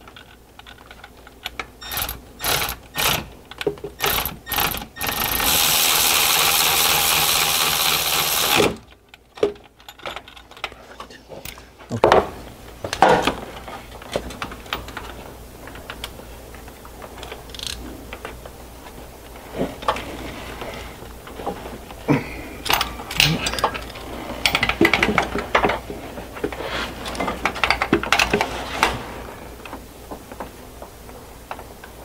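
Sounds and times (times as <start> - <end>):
ratchet wrench clicking: 1.8 - 3.2, 17.5 - 17.8
metal tools clanking: 22.6 - 25.7.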